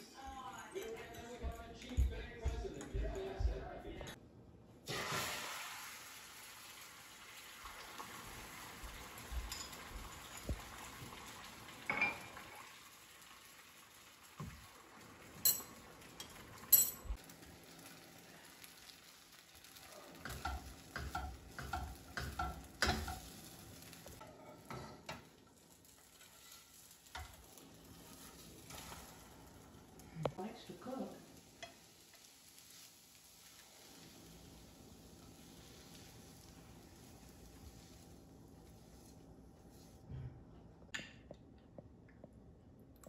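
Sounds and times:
eggs sizzling in a frying pan: 4.8 - 40.1
spatula scraping a pan: 24.2 - 29.3.

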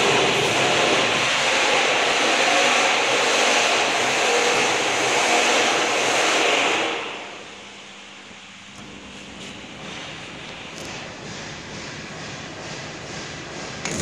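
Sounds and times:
loud rushing machine noise: 0.0 - 7.4, 9.9 - 14.0.

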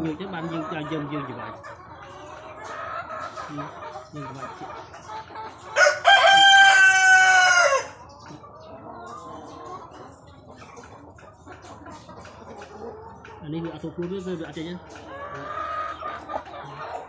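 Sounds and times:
rooster crowing: 5.8 - 8.0.

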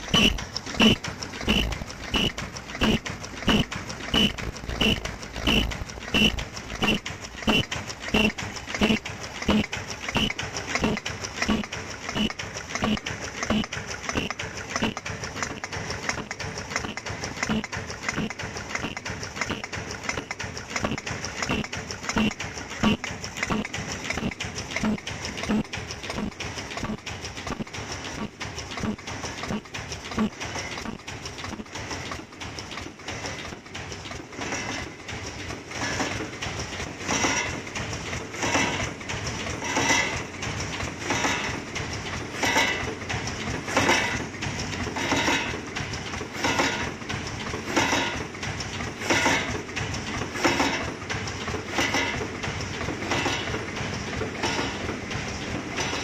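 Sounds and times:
heavy machine stroke: 0.0 - 56.0
packing machine clicking: 0.0 - 56.0.

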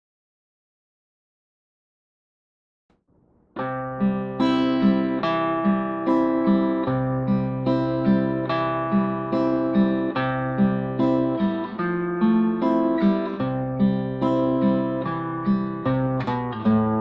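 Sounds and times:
fingerpicked acoustic guitar: 3.6 - 17.0.

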